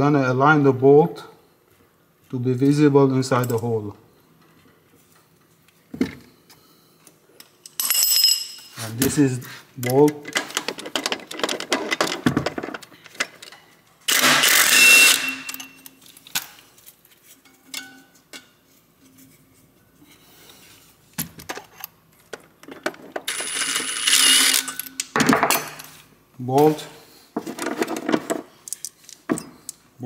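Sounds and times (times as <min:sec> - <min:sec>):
metallic clinks of tools: 0:07.4 - 0:08.8.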